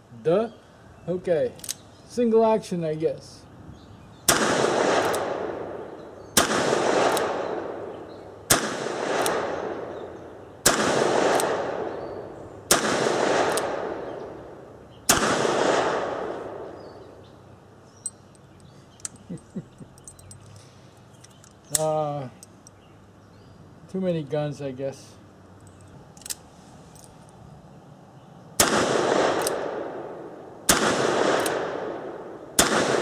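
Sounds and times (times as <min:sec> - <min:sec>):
revolver handling clicks: 0:01.5 - 0:01.9, 0:13.4 - 0:13.7, 0:18.0 - 0:22.8, 0:25.6 - 0:27.4, 0:29.4 - 0:29.6.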